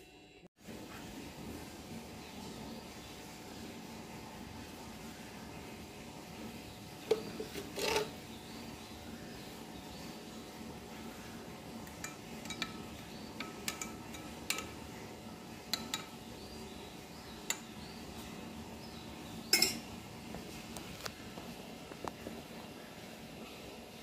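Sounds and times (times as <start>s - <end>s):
spoon clinking in glass: 12.0s - 14.7s, 19.5s - 19.8s.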